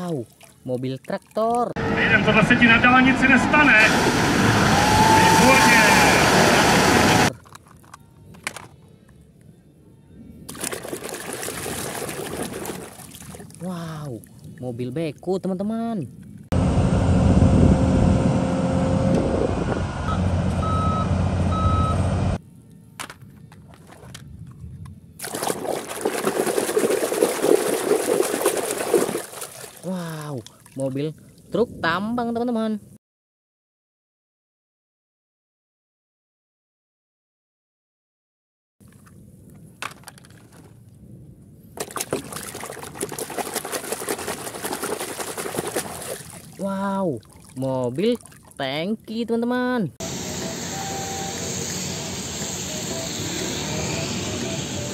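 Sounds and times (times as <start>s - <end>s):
water splashing in plastic basin: 10.5s - 13.6s, 25.2s - 29.9s, 41.8s - 46.6s, 47.2s - 48.6s
back-up alarm beeping: 20.0s - 22.2s, 50.0s - 54.9s
excavator diesel engine running: 50.0s - 54.9s.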